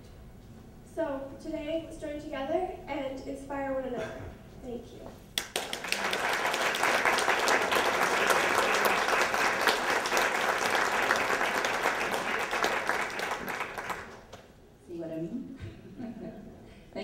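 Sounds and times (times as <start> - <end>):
audience applauding: 5.4 - 14.4.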